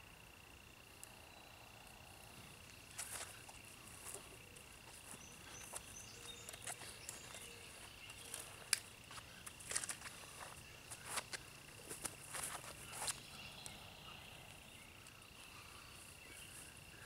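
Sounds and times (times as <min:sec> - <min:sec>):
high insect trill: 0:00.0 - 0:17.0
footsteps on grass: 0:02.9 - 0:13.3.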